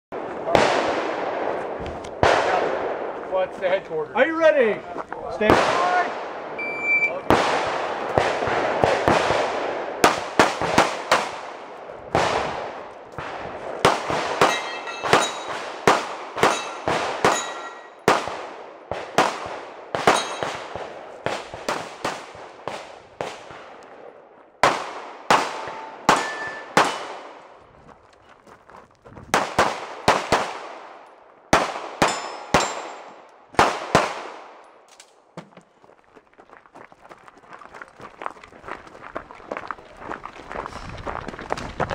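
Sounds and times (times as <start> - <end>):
pistol shots: 7.2 - 23.8, 24.6 - 27.5, 29.3 - 34.6
steel targets clanging: 14.4 - 15.6, 16.4 - 18.0, 20.1 - 20.7, 25.5 - 27.1, 32.0 - 33.0.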